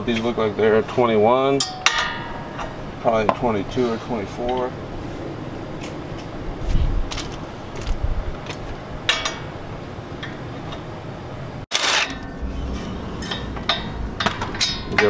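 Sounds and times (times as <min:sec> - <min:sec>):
tools clinking against metal: 0:01.6 - 0:02.8, 0:09.1 - 0:09.5, 0:13.1 - 0:15.0.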